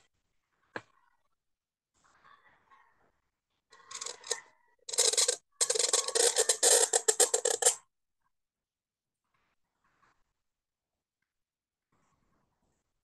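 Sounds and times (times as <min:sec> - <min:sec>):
reed pen scratching across paper: 0:03.8 - 0:07.8.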